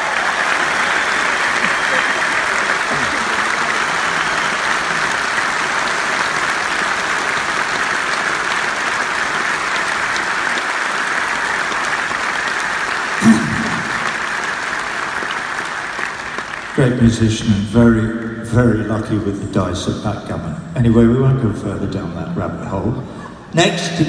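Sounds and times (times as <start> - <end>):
large crowd applauding: 0.0 - 19.7.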